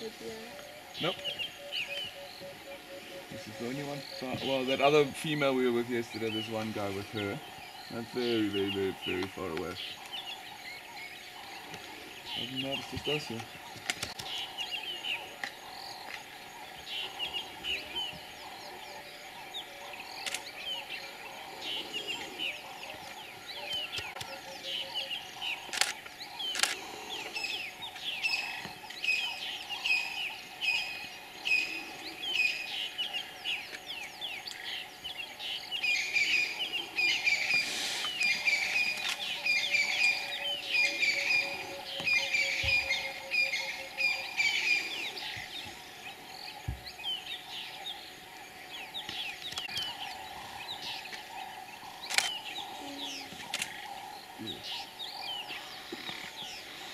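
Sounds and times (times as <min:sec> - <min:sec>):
wild birds chirping: 0:00.0 - 0:56.9
sharp clicks: 0:25.7 - 0:26.8, 0:52.0 - 0:52.4.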